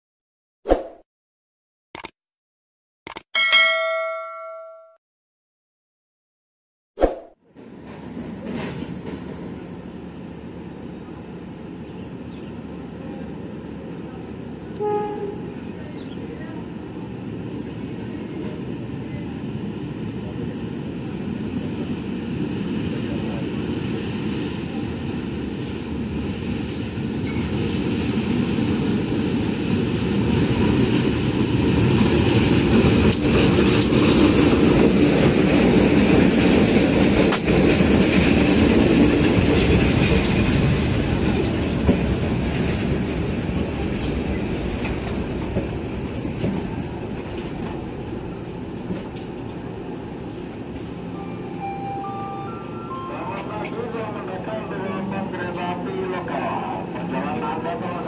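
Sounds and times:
train rumbling past: 0:07.6 - 0:58.0
wheels clattering on rails: 0:30.0 - 0:49.6.

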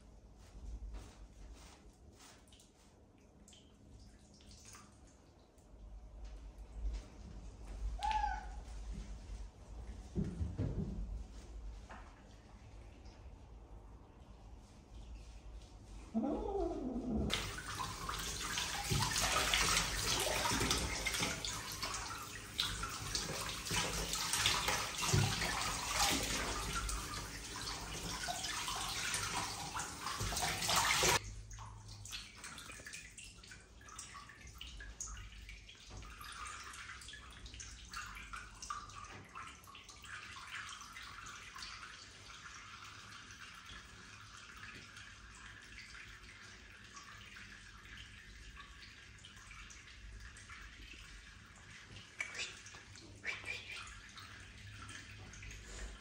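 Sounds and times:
water dripping: 0:00.4 - 0:10.6, 0:16.8 - 0:56.0
water splashing in tub: 0:00.4 - 0:14.2, 0:16.1 - 0:56.0
bathtub tap running: 0:17.3 - 0:31.2.

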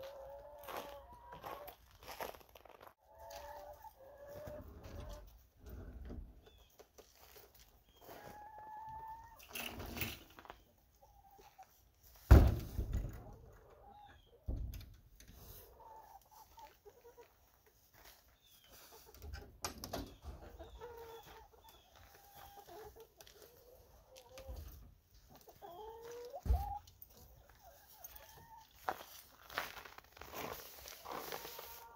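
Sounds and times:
hens clucking: 0:00.0 - 0:01.8, 0:03.0 - 0:07.0, 0:07.6 - 0:09.6, 0:10.3 - 0:12.1, 0:12.9 - 0:14.5, 0:15.2 - 0:29.4, 0:30.5 - 0:31.9.

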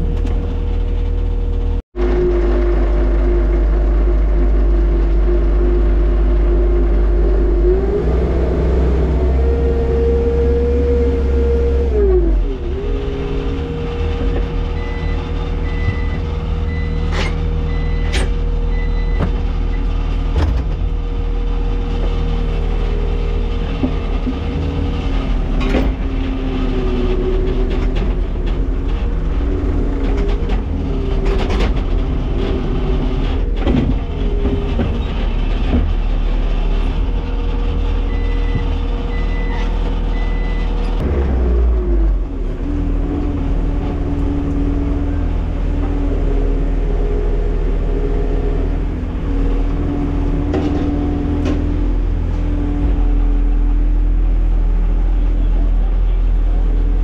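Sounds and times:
loader engine running: 0:00.0 - 0:57.0
backup alarm beeping: 0:14.8 - 0:19.9.

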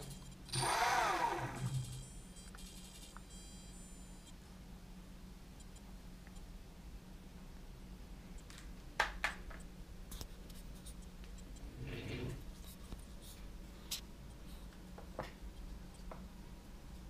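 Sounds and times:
faint steady hum: 0:00.0 - 0:17.0
rustling scrape: 0:11.6 - 0:14.0.

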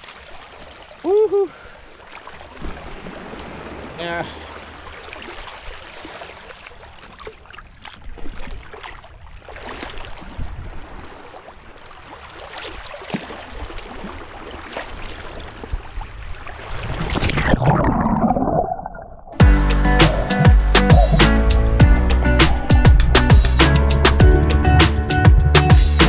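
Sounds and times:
seawater sloshing and splashing: 0:00.0 - 0:18.6
wind rumbling on microphone: 0:08.0 - 0:11.2, 0:15.0 - 0:19.4.

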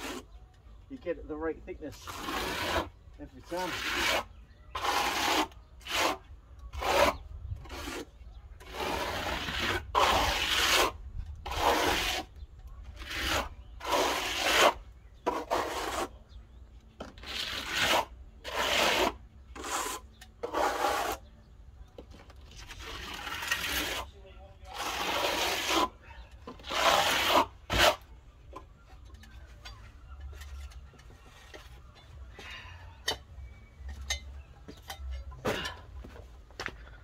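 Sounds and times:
steel trowel scraping board: 0:01.9 - 0:16.2, 0:17.0 - 0:21.3, 0:22.5 - 0:28.1.

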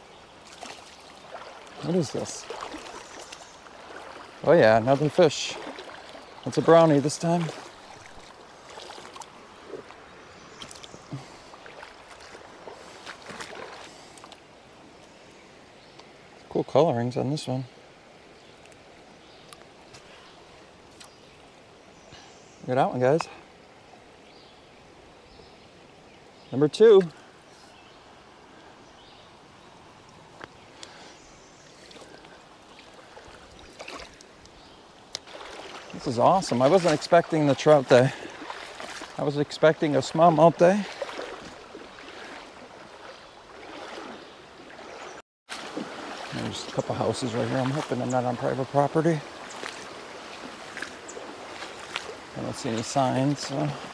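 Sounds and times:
creek water running over stones: 0:00.0 - 0:53.9
splashes in water: 0:00.4 - 0:14.4, 0:31.8 - 0:34.3, 0:35.1 - 0:53.9.

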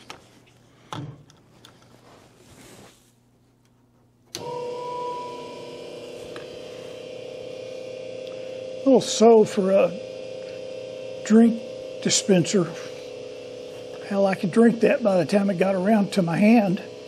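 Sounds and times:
electric motor humming: 0:04.3 - 0:17.0
motor whine: 0:04.3 - 0:17.0.

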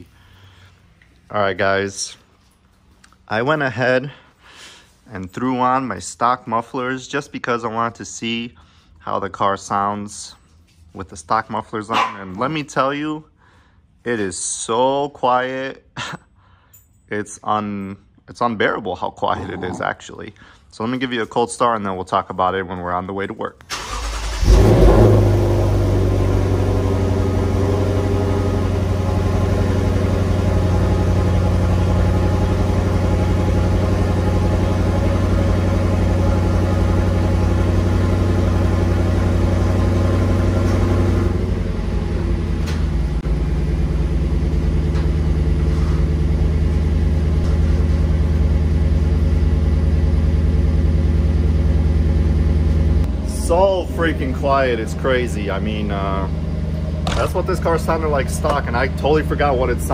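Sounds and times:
car engine cold start and idling: 0:23.6 - 0:59.9.

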